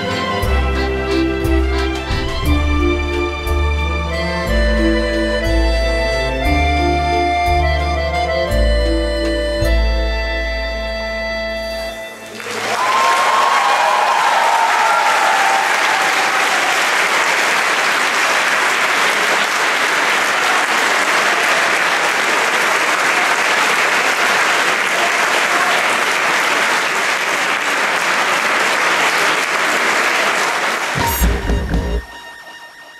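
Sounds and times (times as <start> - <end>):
waltz music: 0.0 - 12.6, 31.0 - 32.9
audience applause: 12.1 - 32.8.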